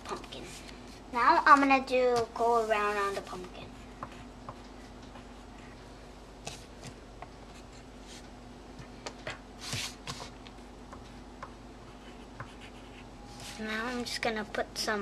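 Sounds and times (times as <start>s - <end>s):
pencil scratching on paper: 11.8s - 14.0s.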